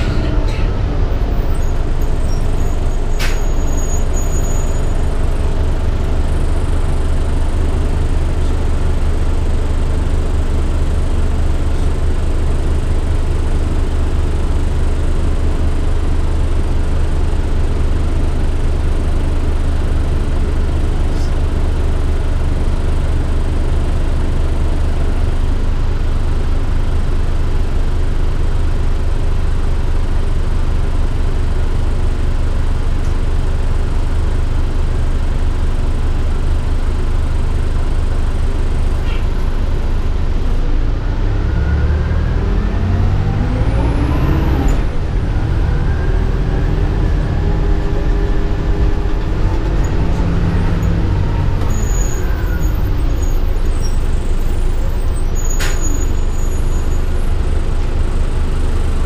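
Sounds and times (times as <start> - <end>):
bus engine rumbling: 0.0 - 59.0.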